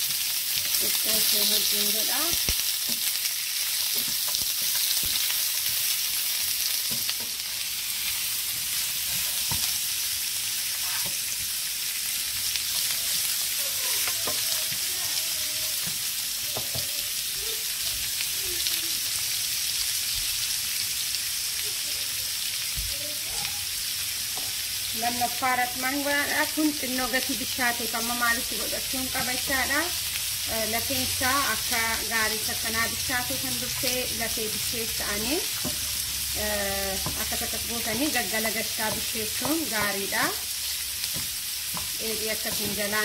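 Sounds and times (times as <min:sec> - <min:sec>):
meat sizzling in oil: 0:00.0 - 0:43.0
wooden spatula knocking pan: 0:36.9 - 0:40.1, 0:41.1 - 0:43.0.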